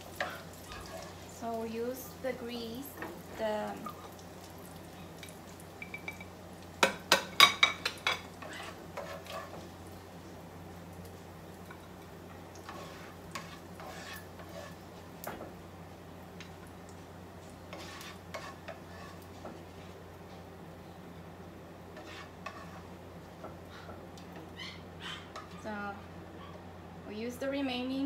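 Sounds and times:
spatula scraping and knocking pan: 0.2 - 1.2, 5.8 - 9.7, 12.6 - 15.5, 17.7 - 20.0, 21.9 - 24.4.

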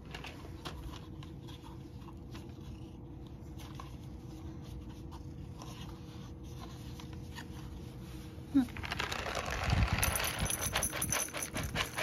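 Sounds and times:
cat crunching dry kibble: 8.8 - 12.0.

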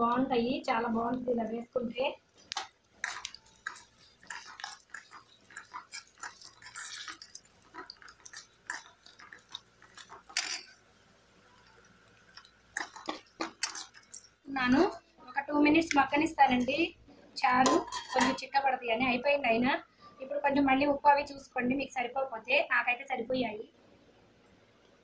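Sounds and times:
spices popping in hot oil: 0.0 - 17.0.

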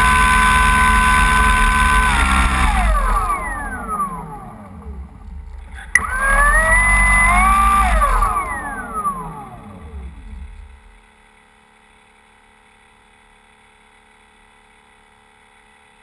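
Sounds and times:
model plane motor whine: 0.0 - 11.1.

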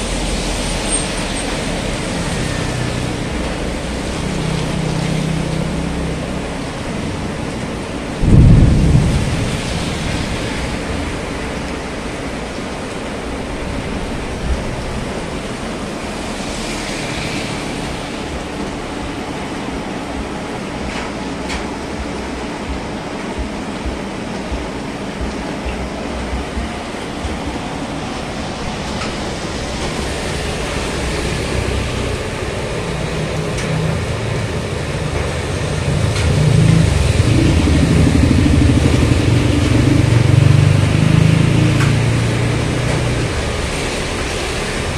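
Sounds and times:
rain: 0.0 - 44.9
traffic on a wet road: 0.0 - 44.9
low hum: 6.6 - 13.0, 34.4 - 44.8.

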